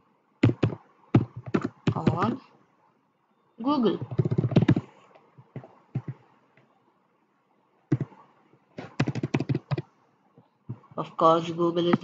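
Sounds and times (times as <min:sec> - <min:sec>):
typing on computer keyboard: 0:00.4 - 0:02.4, 0:04.0 - 0:06.2, 0:07.9 - 0:08.2, 0:08.8 - 0:09.9.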